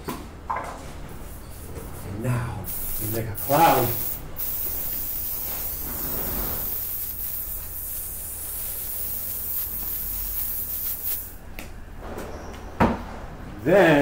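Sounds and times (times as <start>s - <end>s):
aerosol spray hissing: 2.6s - 11.4s.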